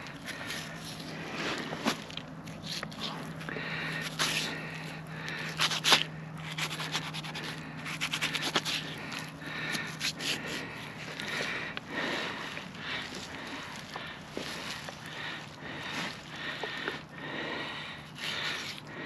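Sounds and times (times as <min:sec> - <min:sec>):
knife scraping hide: 0:00.0 - 0:11.5, 0:18.1 - 0:18.8.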